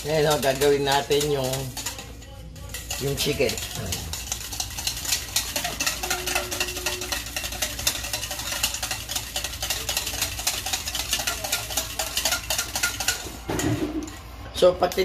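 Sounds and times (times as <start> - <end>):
whisk clattering in a metal bowl: 0.0 - 15.0.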